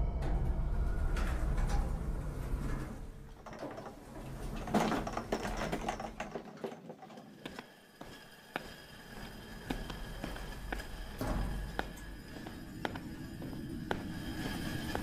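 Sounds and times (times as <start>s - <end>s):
low rumble: 0.0s - 3.4s
elevator doors sliding open: 0.2s - 7.5s, 11.0s - 12.5s
cleaning cart rattling: 3.3s - 7.7s.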